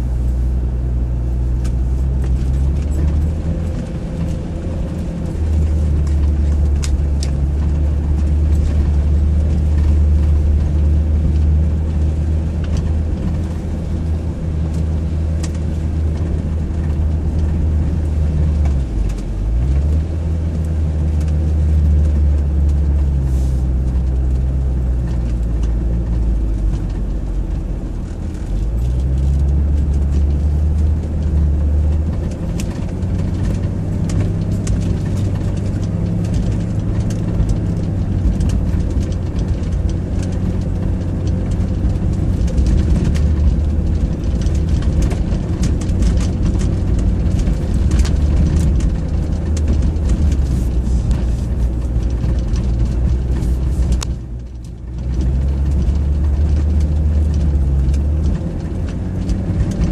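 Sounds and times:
engine and road drone: 0.0s - 59.9s
knocks and rattles over bumps: 1.0s - 59.9s.

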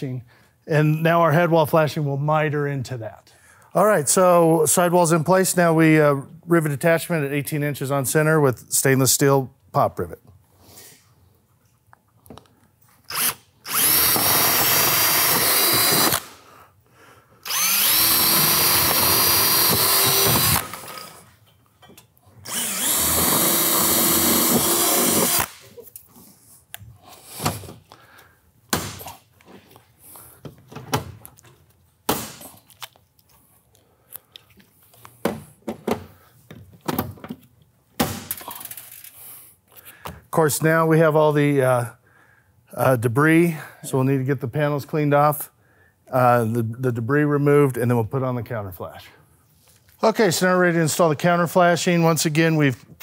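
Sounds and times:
drill boring through metal: 13.1s - 16.3s, 17.4s - 21.2s, 22.4s - 25.6s.

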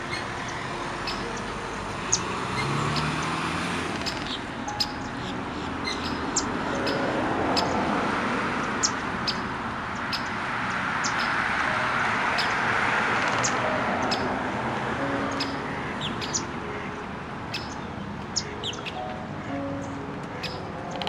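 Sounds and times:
high-pitched bird chirps: 0.0s - 1.5s, 4.0s - 7.8s, 11.0s - 11.4s, 15.0s - 16.5s, 17.5s - 20.8s.

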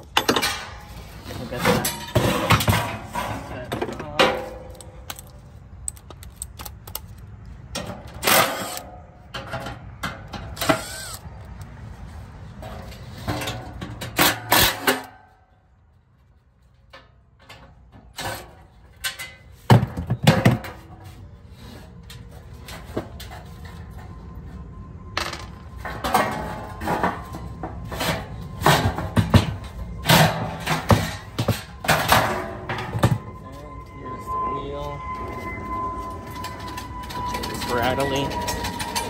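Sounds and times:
sheet metal clanking and rattling: 0.0s - 5.2s.

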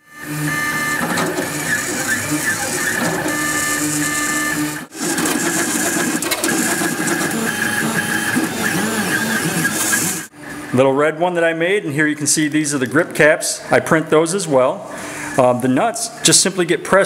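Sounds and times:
stepper motors whining: 0.0s - 10.3s.

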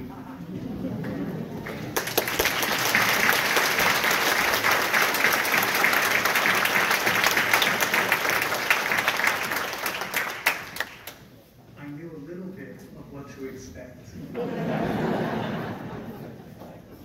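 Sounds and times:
crowd applauding: 1.6s - 11.2s.

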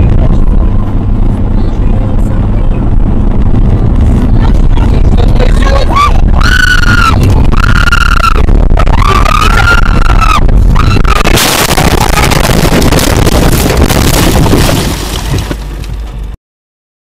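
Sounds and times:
long high wails: 5.8s - 11.3s
vehicle crash: 8.4s - 16.4s
windscreen shattering: 10.5s - 16.2s.

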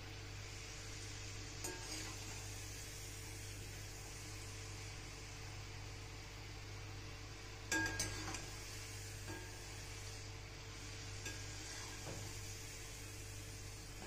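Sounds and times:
dough sizzling in hot oil: 0.0s - 14.0s
metal spoon scraping pan: 1.6s - 2.4s.

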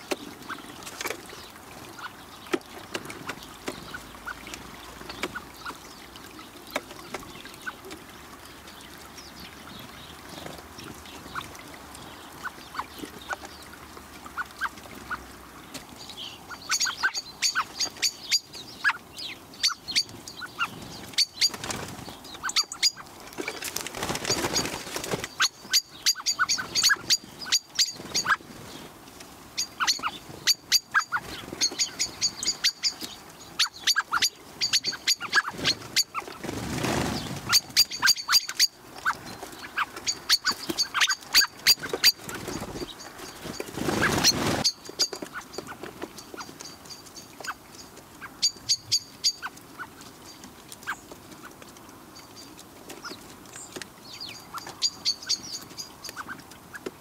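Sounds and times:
blackbirds chink calls: 0.0s - 28.9s, 29.5s - 57.0s.

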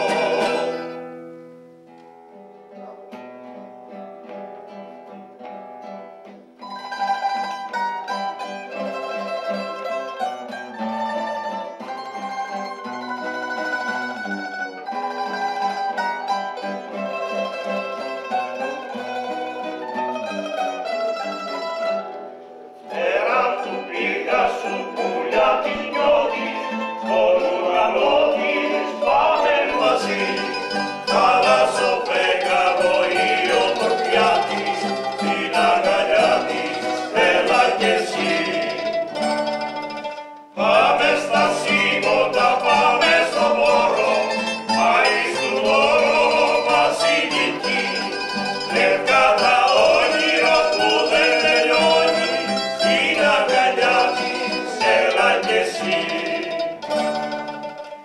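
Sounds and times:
men singing in harmony: 0.0s - 1.1s, 22.9s - 39.2s, 40.6s - 57.0s
mandolin and guitar: 0.0s - 58.0s.

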